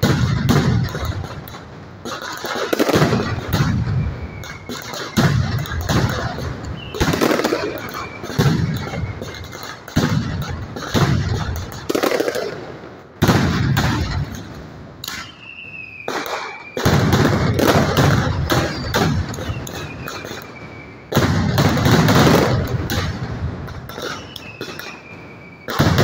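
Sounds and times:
firecrackers going off: 0.0 - 26.0
falling whistles: 2.8 - 10.0, 15.0 - 21.2, 23.9 - 26.0.

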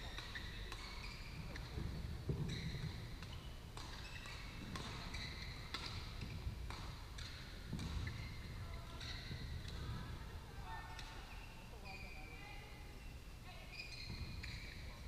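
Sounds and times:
racket hitting shuttlecock: 0.0 - 9.8
shoe squeaks on court: 0.0 - 10.0, 10.9 - 15.0
low hum of hall noise: 0.0 - 15.0.

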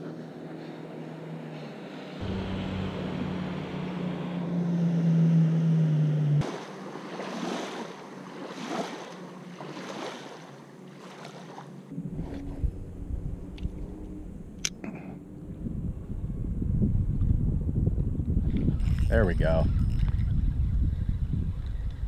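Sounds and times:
motorboat engine humming: 0.0 - 22.0
waves washing onto shore: 6.4 - 11.7.

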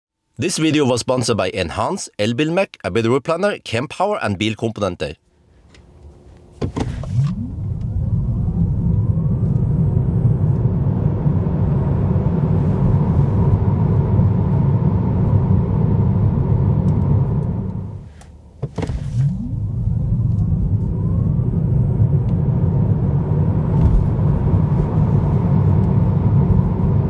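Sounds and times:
electric motor whine rising: 5.8 - 17.9
click: 16.8 - 18.9.

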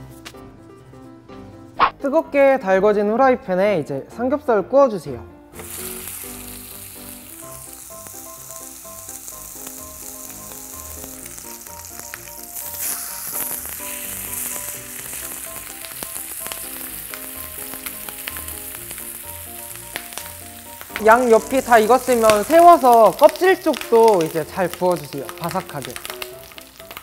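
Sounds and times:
light background music: 0.0 - 27.0
meat sizzling in a frying pan: 5.6 - 27.0.

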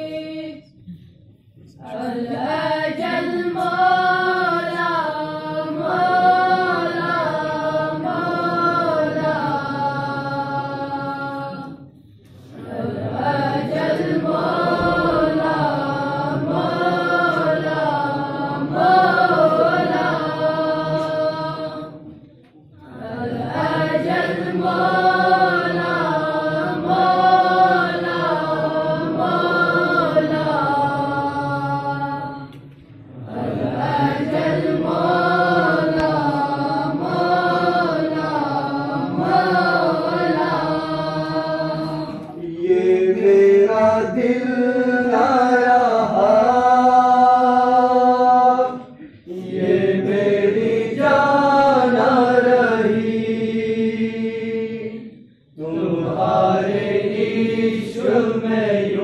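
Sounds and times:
young men singing in unison: 1.8 - 22.2, 22.8 - 59.0.

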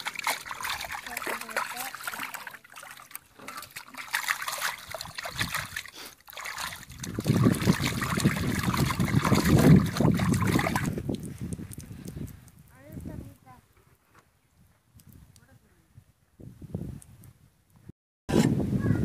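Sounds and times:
water trickling and splashing: 0.0 - 13.6.

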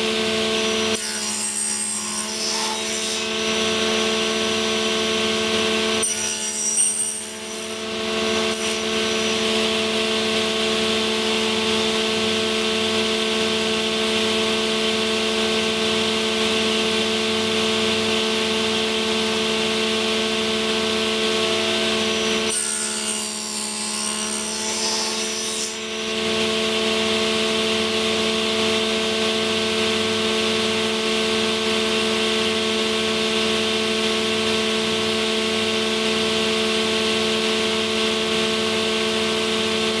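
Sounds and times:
saw cutting wood: 0.0 - 17.4, 18.1 - 32.0
circular saw running: 0.0 - 40.0.

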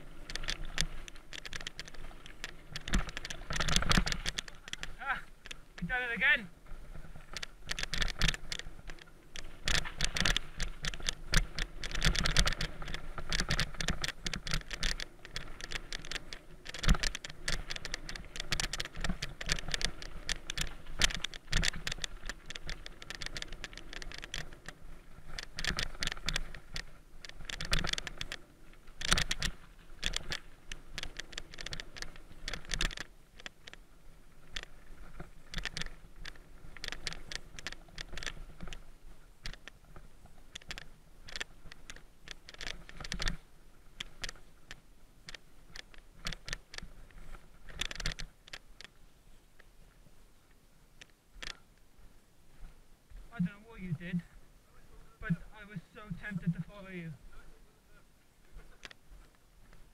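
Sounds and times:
mountain bike rattling: 0.0 - 49.1.

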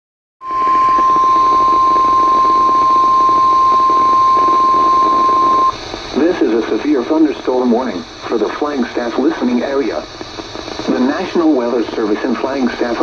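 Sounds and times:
steady alarm beep tone: 0.4 - 5.8
faint static hiss: 0.6 - 13.0.

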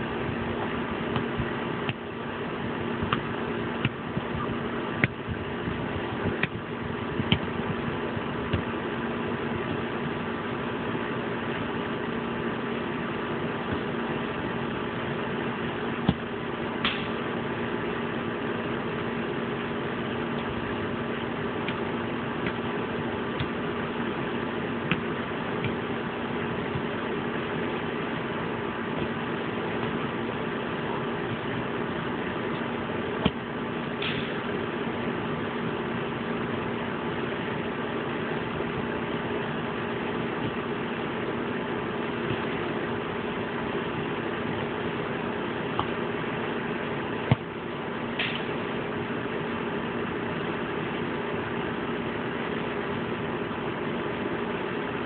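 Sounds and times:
steady mechanical hum: 0.0 - 55.0.

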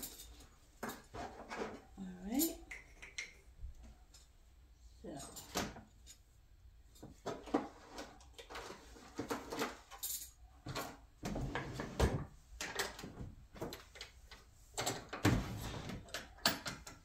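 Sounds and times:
rummaging in wooden drawer: 0.0 - 2.0, 7.0 - 10.0, 10.6 - 17.0.

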